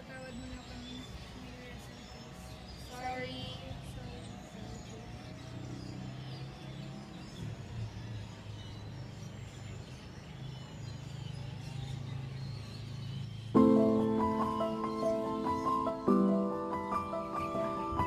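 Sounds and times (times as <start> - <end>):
faint bird chirps: 0.0 - 18.0
music with sustained chord: 10.8 - 18.0.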